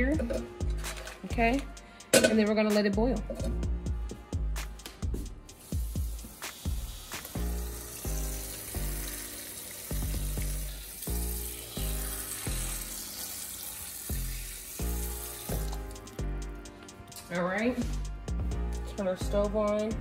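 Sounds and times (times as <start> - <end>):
background music with bass beat: 0.0 - 9.3, 14.1 - 20.0
faucet running into saucepan: 5.6 - 16.2.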